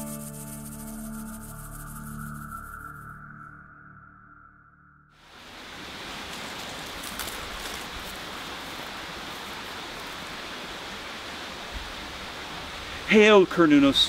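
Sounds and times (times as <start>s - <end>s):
outdoor background hiss: 5.2s - 14.0s.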